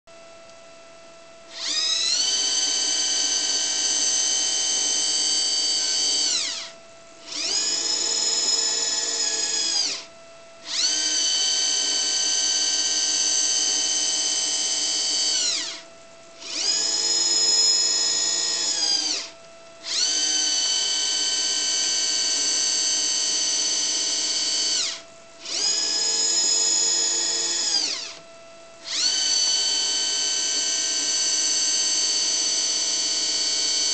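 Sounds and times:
faint steady hum: 0:00.1 - 0:33.9
motor whining: 0:01.5 - 0:33.9.

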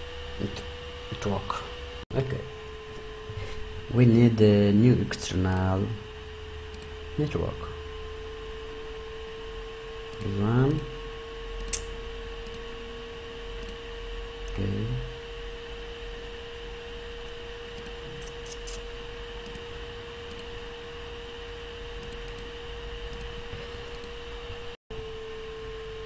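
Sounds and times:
steady electrical hum: 0:00.0 - 0:26.0
computer mouse clicks: 0:05.5 - 0:05.7, 0:06.7 - 0:07.0, 0:11.6 - 0:12.6, 0:17.7 - 0:18.8, 0:19.4 - 0:19.6, 0:20.3 - 0:20.5, 0:22.0 - 0:22.5, 0:23.1 - 0:24.2.

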